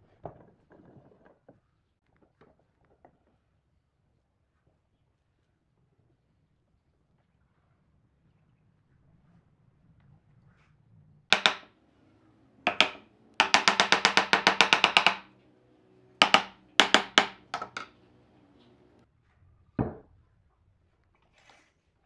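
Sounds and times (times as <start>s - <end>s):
hammer striking wooden boards: 11.3s - 11.7s, 12.7s - 15.4s, 16.2s - 19.0s.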